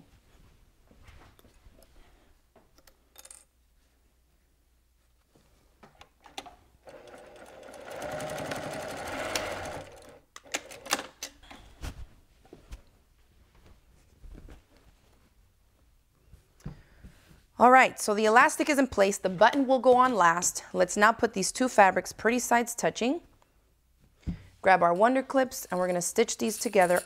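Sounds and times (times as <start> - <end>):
sewing machine stitching: 6.8 - 11.1.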